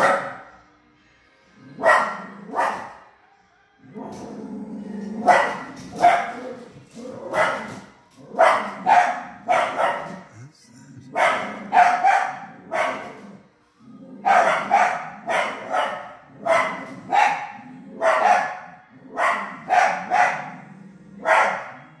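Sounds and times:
dog barking loudly: 0:00.0 - 0:00.5, 0:01.8 - 0:03.0, 0:05.2 - 0:06.5, 0:07.2 - 0:10.3, 0:11.1 - 0:13.2, 0:14.2 - 0:20.6, 0:21.2 - 0:21.8.

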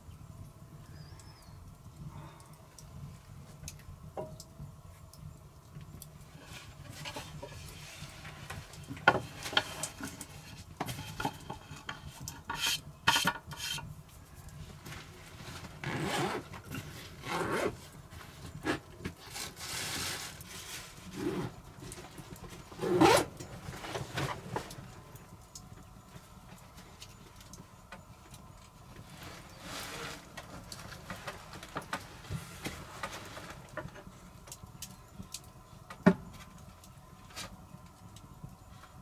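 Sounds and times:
handling scrapes and rubbing: 0:14.8 - 0:21.6, 0:29.1 - 0:33.6.

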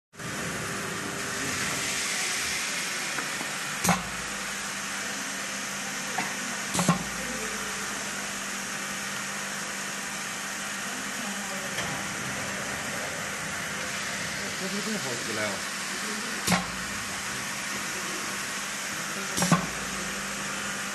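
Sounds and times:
low machine hum: 0:09.6 - 0:20.9.

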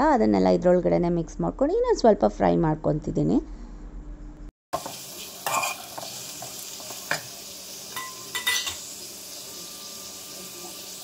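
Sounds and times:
food sizzling in oil: 0:04.7 - 0:11.0
metal spoon scraping pan: 0:05.4 - 0:07.3.

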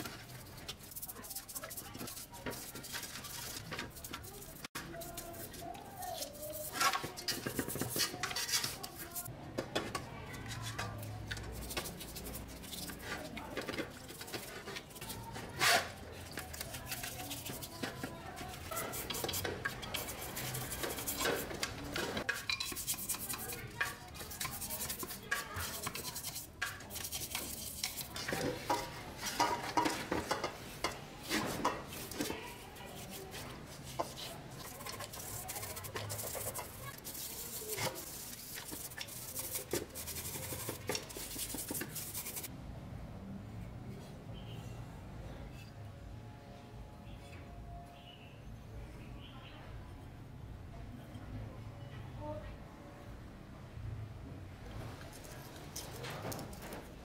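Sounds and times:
bristles scrubbing: 0:00.0 - 0:09.3, 0:10.6 - 0:42.5.

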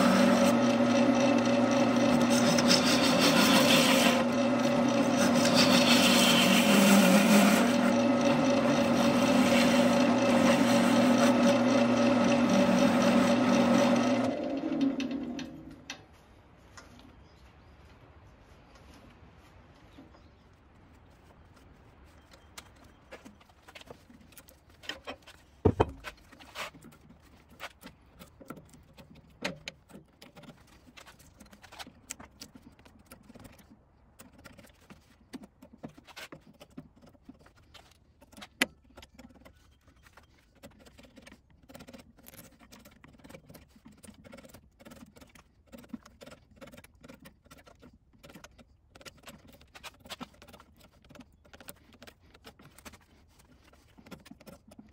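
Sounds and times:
chisel scraping bark: 0:00.0 - 0:14.4, 0:22.4 - 0:33.6, 0:34.2 - 0:54.9
small clicks and knocks: 0:22.2 - 0:54.9.

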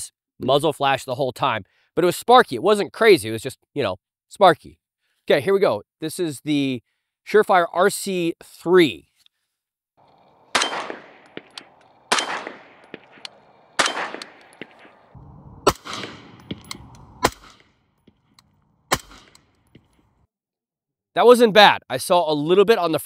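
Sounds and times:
suppressed rifle shots: 0:10.1 - 0:20.1.

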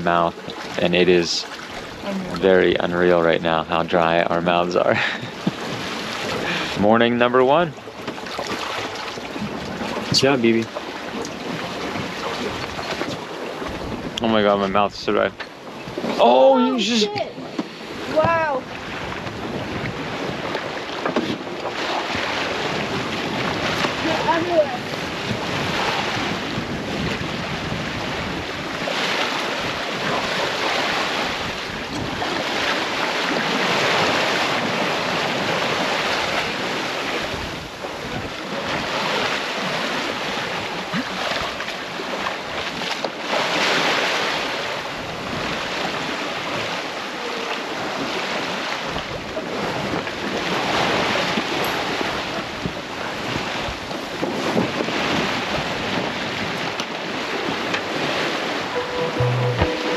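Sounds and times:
water rushing past hull: 0:00.0 - 0:59.9
wind buffeting microphone: 0:09.2 - 0:14.2, 0:17.0 - 0:41.6.

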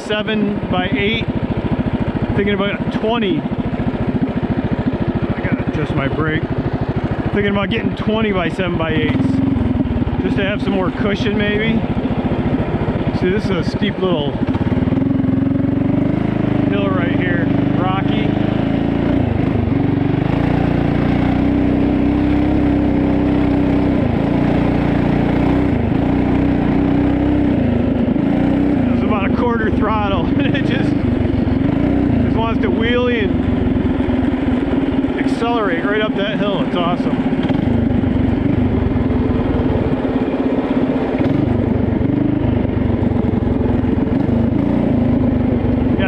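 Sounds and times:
mini bike engine revving: 0:00.0 - 0:46.0.

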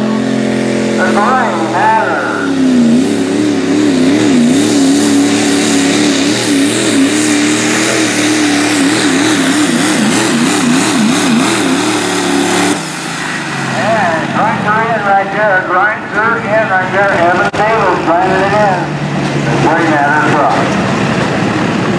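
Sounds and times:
diesel engine running under load: 0:00.0 - 0:21.9.

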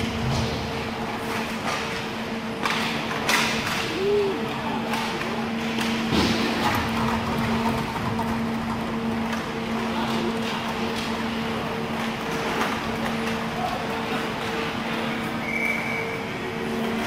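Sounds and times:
steady hum: 0:00.0 - 0:17.0
hockey sticks and puck clacking: 0:02.6 - 0:03.9.

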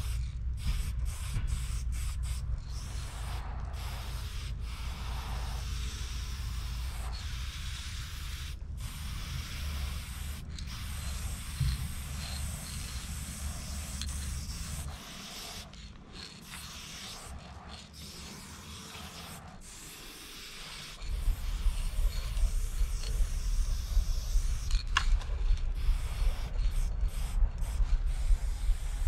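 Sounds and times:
low rumble: 0:00.0 - 0:15.0, 0:21.0 - 0:29.0
spray paint can hissing: 0:00.0 - 0:29.0.

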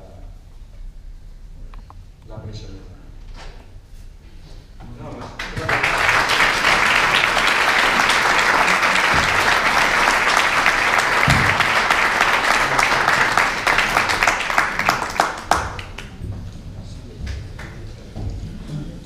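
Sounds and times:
audience applause: 0:05.4 - 0:16.3.

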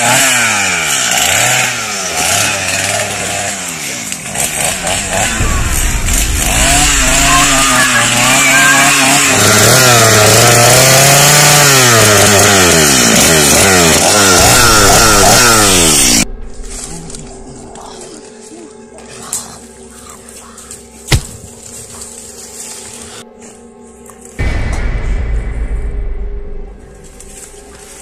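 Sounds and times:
chainsaw engine revving: 0:00.0 - 0:16.2.

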